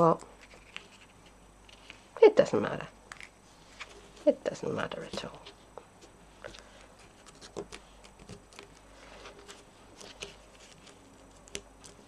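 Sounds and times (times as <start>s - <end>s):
paper rustling and tapping: 6.5s - 12.0s.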